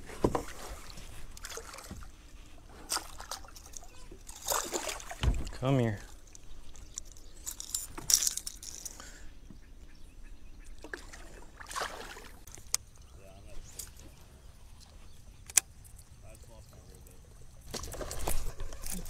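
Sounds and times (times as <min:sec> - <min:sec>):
water splashing: 0:00.0 - 0:06.8, 0:10.8 - 0:12.7
fishing gear clicks and knocks: 0:02.8 - 0:09.1, 0:17.6 - 0:19.0.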